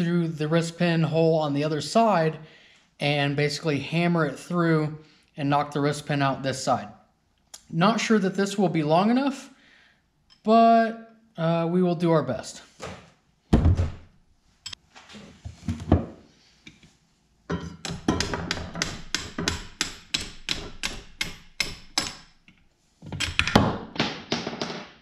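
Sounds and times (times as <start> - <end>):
hammer striking metal extension: 17.5 - 22.4.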